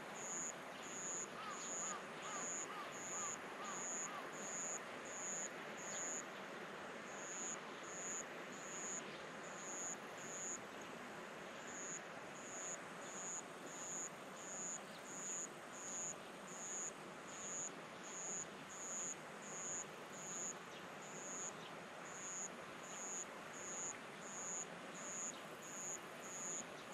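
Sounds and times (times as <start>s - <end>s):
insect chirping: 0.2s - 6.2s.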